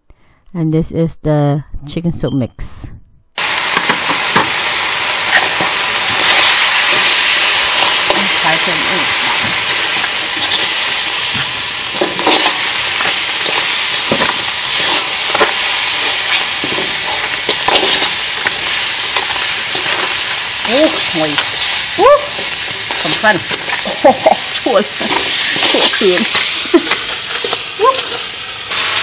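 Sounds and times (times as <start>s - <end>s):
food sizzling in a wok: 3.4s - 29.0s
metal utensils scraping a pan: 11.9s - 21.4s.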